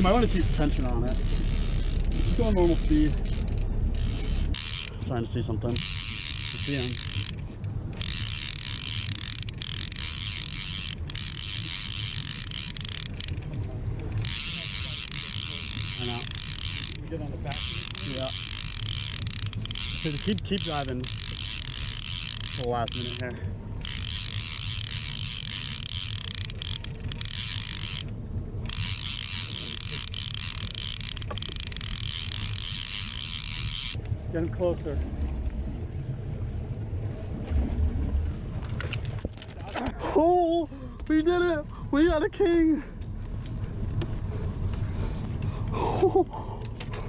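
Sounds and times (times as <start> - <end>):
fishing reel clicking whir: 0.0 - 34.1
low boat engine hum: 0.0 - 47.0.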